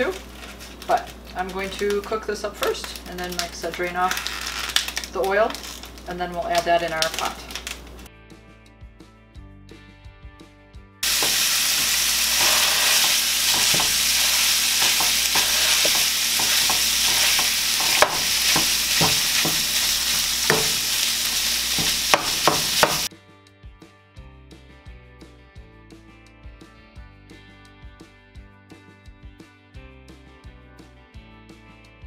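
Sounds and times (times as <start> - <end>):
quiet background music: 0.0 - 4.2
meat sizzling in a frying pan: 0.0 - 8.1, 11.0 - 23.1.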